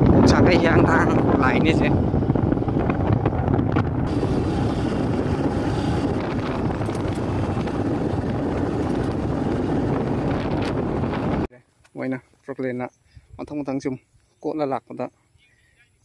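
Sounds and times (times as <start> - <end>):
wind buffeting microphone: 0.0 - 11.5
motorbike engine running: 1.1 - 11.5.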